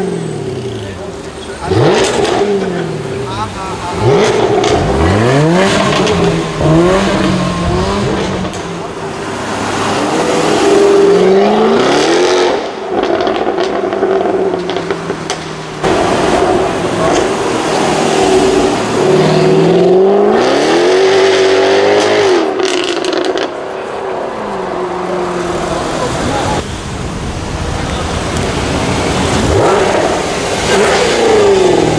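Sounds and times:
car engine accelerating hard: 0.0 - 23.8, 27.4 - 31.9.

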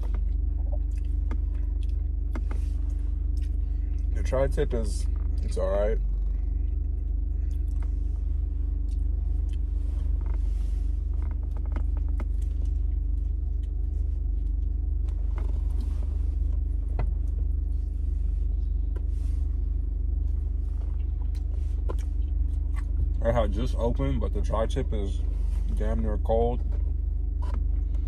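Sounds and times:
person chewing a sandwich: 0.0 - 4.1, 6.1 - 8.0, 20.9 - 23.2
car engine idling: 0.0 - 28.0.

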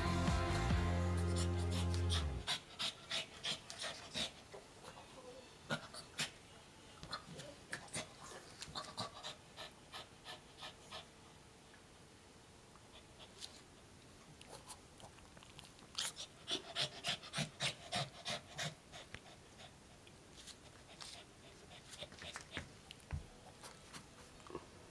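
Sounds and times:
small dog panting: 1.3 - 5.1, 7.1 - 11.2, 14.4 - 24.6.

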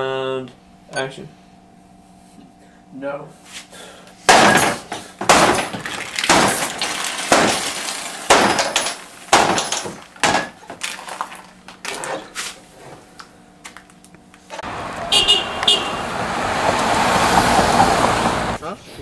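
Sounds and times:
stick smashing onto workbench: 4.3 - 11.8.

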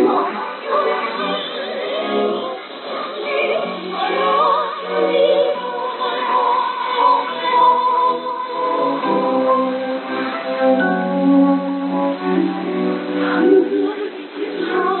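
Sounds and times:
operatic singing over radio: 0.0 - 10.3.

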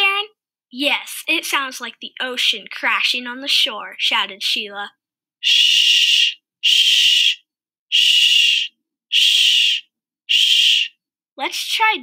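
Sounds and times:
person saying shh: 5.4 - 10.9.

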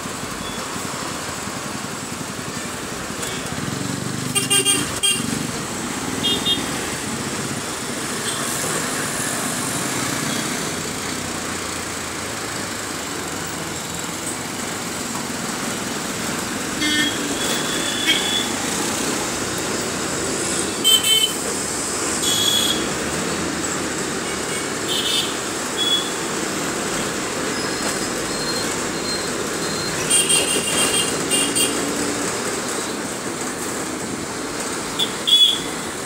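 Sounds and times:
bus engine and road noise: 0.0 - 36.0.

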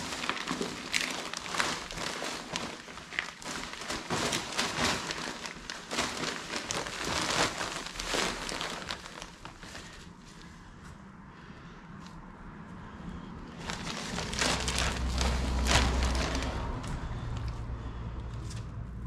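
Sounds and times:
falling soil rustling: 0.0 - 10.5, 13.6 - 16.8
plastic bag rustling: 0.0 - 10.6, 13.5 - 17.2.

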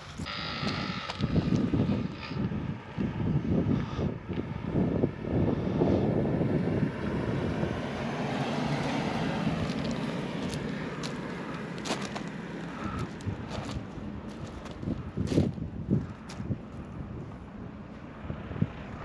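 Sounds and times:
vehicle engine passing: 0.0 - 19.0
wind rumbling on microphone: 0.0 - 19.0.

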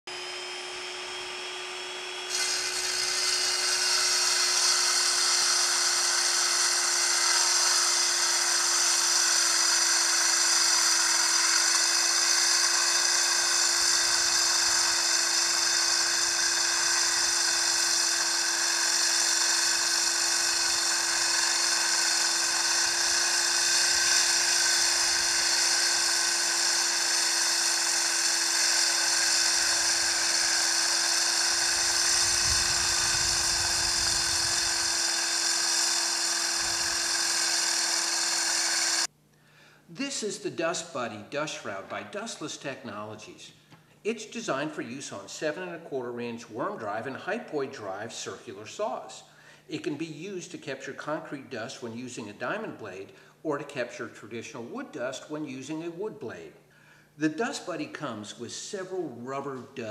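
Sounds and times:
circular saw cutting concrete: 0.1 - 39.1
shop vacuum humming: 0.1 - 39.1.

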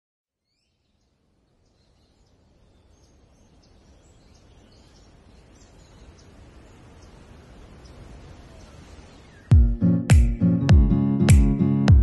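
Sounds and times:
small birds chirping: 0.4 - 10.4.

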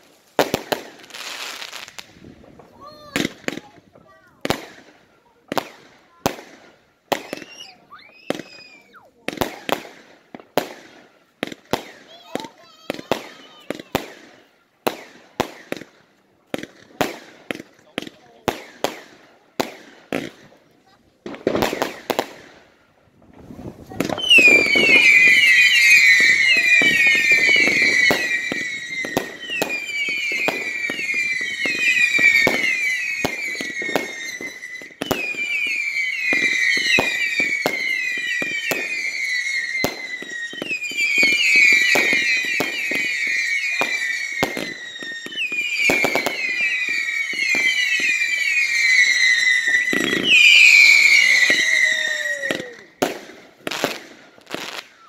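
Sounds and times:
firework pops and bangs: 0.0 - 55.0
shrill falling firework whistles: 7.1 - 9.2, 12.8 - 14.0, 23.4 - 55.0.

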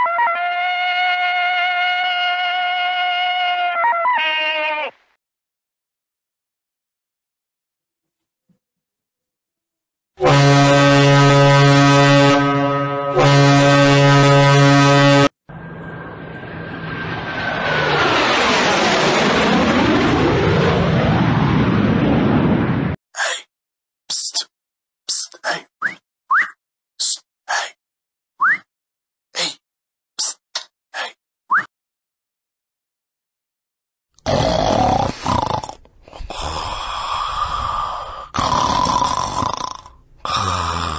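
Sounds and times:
deep horn blast: 10.2 - 17.6
vehicle approaching with whine: 14.0 - 23.0
loud snoring: 34.2 - 40.9.

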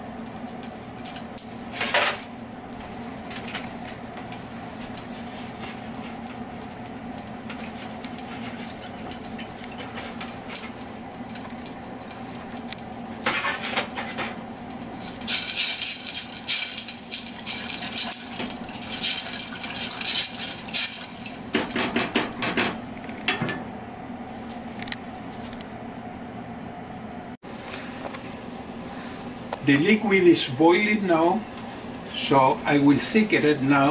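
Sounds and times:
steady hum: 0.0 - 33.9
stirring in metal pot: 15.1 - 21.4.

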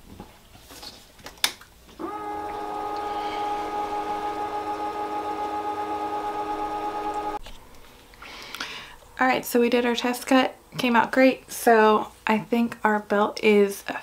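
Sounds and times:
laser cutter machinery humming: 2.0 - 7.4.

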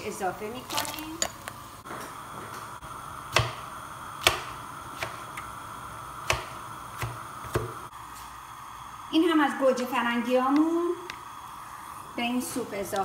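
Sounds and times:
knife chopping on cutting board: 3.3 - 3.6, 4.2 - 5.3, 6.2 - 7.8.

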